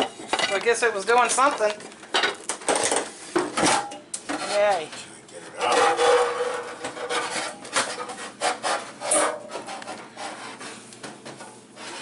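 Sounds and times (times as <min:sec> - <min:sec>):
metal sink scraping countertop: 0:05.5 - 0:12.0.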